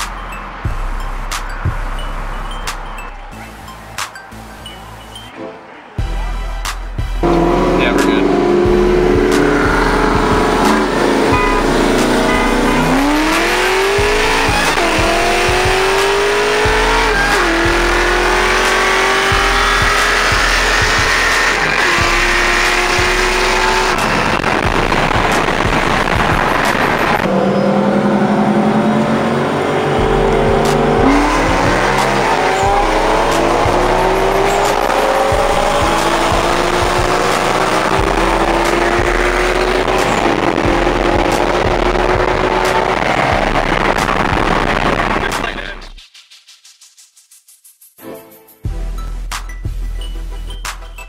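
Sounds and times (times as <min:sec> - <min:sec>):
wind and road noise: 0:00.0 - 0:45.9
car engine accelerating: 0:06.9 - 0:46.0.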